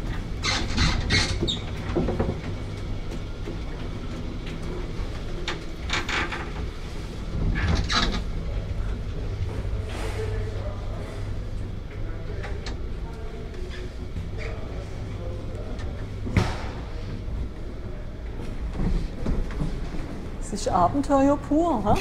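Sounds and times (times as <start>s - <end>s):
lift cabin creaking and rattling: 0.0s - 9.8s
low mechanical rumble: 0.0s - 22.0s.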